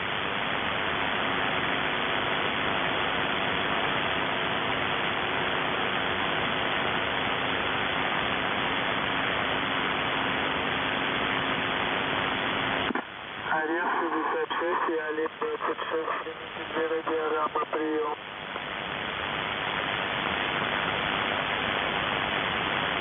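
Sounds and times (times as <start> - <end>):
radio static hiss: 0.0 - 23.0.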